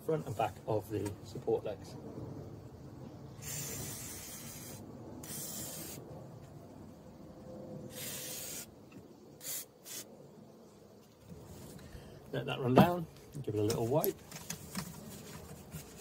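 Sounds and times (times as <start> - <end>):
aerosol can spraying: 3.4 - 6.0, 7.9 - 8.7, 9.4 - 10.1.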